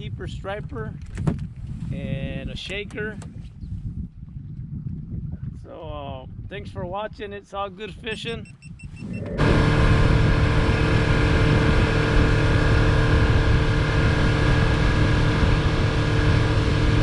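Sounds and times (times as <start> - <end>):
outboard motor running: 8.2 - 17.0
water rushing: 9.0 - 17.0.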